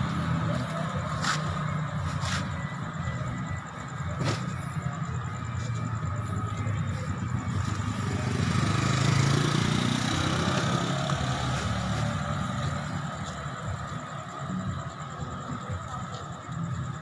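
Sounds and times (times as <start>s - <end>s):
vehicle engine passing: 7.0s - 13.9s.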